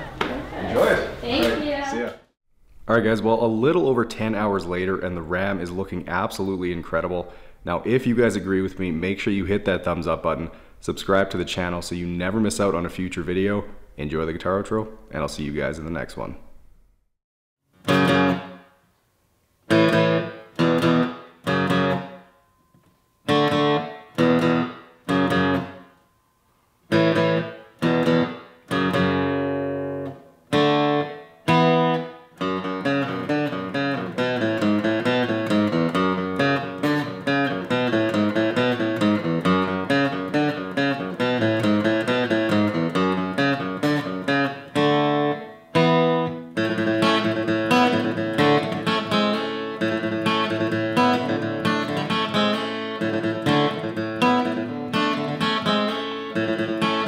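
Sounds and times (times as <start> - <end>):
acoustic guitar strumming: 17.7 - 18.8, 19.7 - 57.0.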